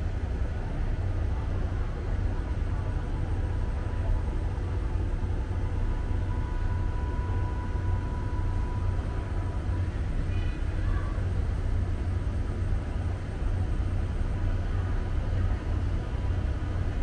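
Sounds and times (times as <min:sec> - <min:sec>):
diesel train rumble: 0:00.0 - 0:17.0
faint thin whine: 0:01.1 - 0:12.9.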